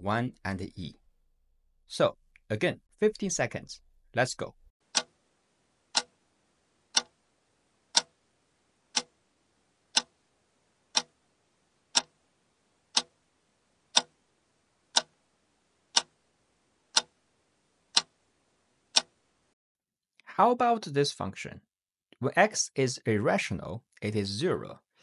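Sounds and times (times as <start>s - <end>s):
clock ticking: 4.9s - 5.1s, 5.9s - 6.1s, 6.9s - 7.1s, 7.9s - 8.2s, 8.9s - 9.1s, 9.9s - 10.1s, 10.9s - 11.1s, 11.9s - 12.1s, 12.9s - 13.2s, 13.9s - 14.2s, 14.9s - 15.1s, 15.9s - 16.1s, 16.9s - 17.1s, 17.9s - 18.1s, 18.9s - 19.1s.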